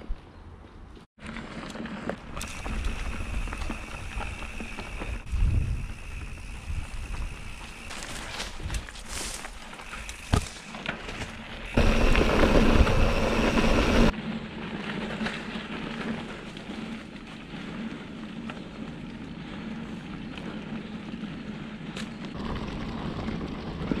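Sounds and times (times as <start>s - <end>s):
bike rattling: 1.2s - 24.0s
bike tyres rolling on dirt: 1.2s - 24.0s
wind on microphone: 2.4s - 7.8s
loud rumbling noise: 11.8s - 14.1s.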